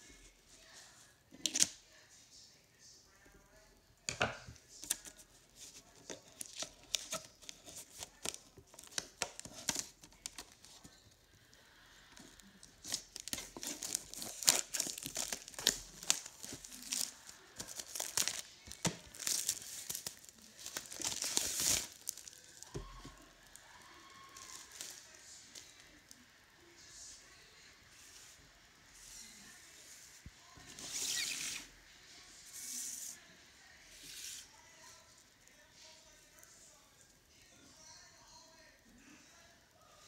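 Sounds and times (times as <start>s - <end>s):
foil wrapper crinkling and tearing: 12.4s - 22.8s.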